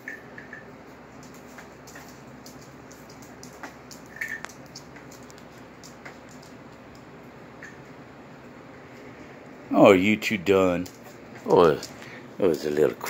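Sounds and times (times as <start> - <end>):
steady low hum: 0.0 - 13.0
dog claws clicking on concrete: 1.2 - 7.1, 10.7 - 12.1.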